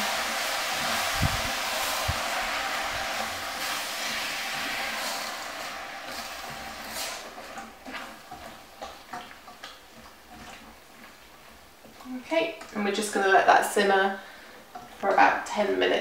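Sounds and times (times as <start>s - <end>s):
stew sizzling in a saucepan: 0.0s - 10.3s
wooden spoon scraping a pan: 0.1s - 15.5s.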